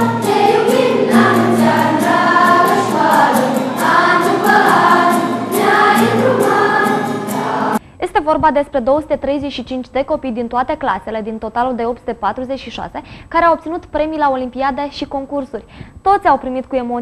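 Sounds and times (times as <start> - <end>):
accompaniment with steady beat: 0.0 - 7.8
children's choir singing: 0.0 - 7.8.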